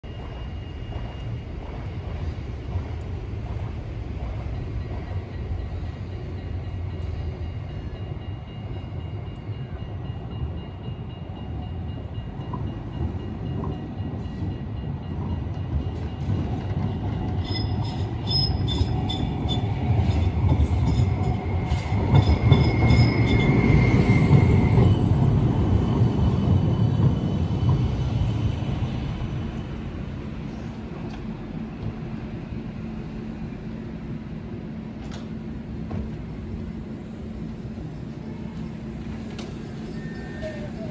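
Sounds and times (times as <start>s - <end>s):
tram rumbling: 0.0s - 40.9s
high wheel squeal: 17.3s - 20.3s, 20.9s - 28.3s, 39.5s - 40.9s.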